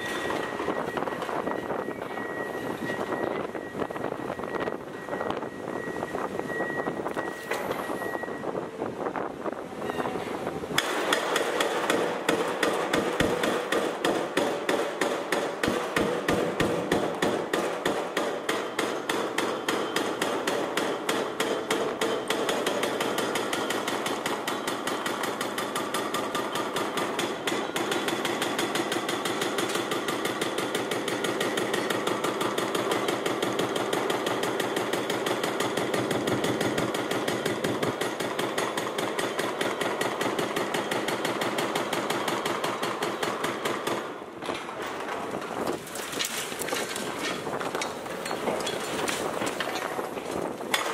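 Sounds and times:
hydraulic breaker hammer pounding concrete: 0:10.8 - 0:50.9.

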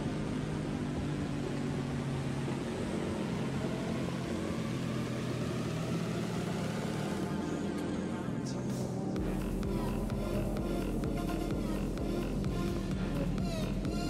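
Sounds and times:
motorcycle engine cruising: 0:00.0 - 0:14.0.

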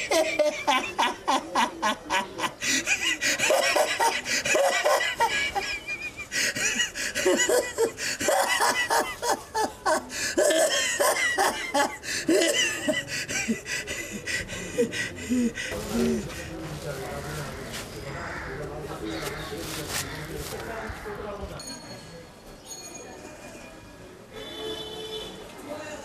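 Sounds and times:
man laughing hard: 0:00.0 - 0:15.7.

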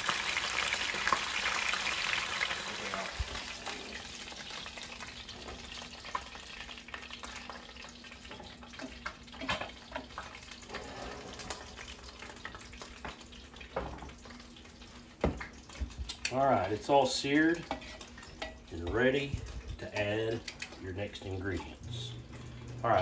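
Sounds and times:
meat sizzling in oil: 0:00.0 - 0:10.8.

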